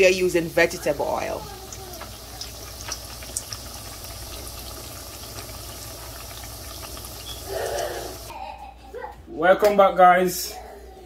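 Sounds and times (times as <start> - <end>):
plantains frying in oil: 0.0 - 8.3.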